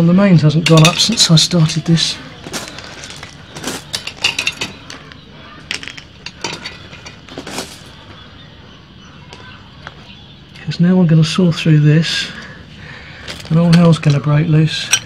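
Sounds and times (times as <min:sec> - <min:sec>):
hand tools clinking: 0:00.6 - 0:08.2, 0:13.2 - 0:15.0.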